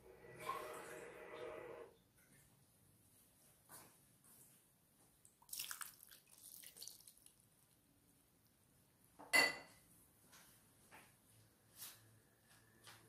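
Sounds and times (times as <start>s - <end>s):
water splashing into pot: 5.3s - 7.5s.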